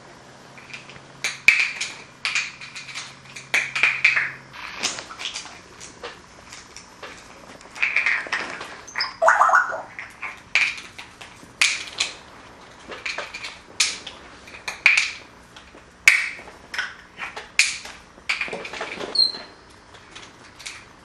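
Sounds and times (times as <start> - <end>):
plastic cap clattering on floor: 0.6 - 12.2, 12.8 - 19.5
parrot squeak: 8.9 - 10.0, 19.2 - 19.4.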